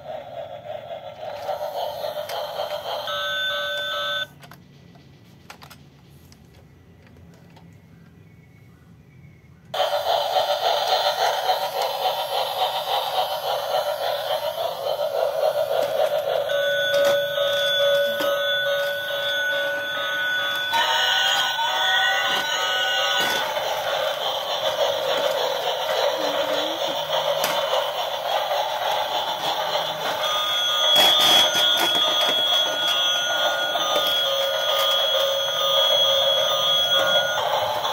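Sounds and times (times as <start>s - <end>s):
toy trains whirring: 0.0s - 7.8s, 9.7s - 37.9s
electronic toy tones: 3.0s - 4.4s, 30.1s - 37.9s.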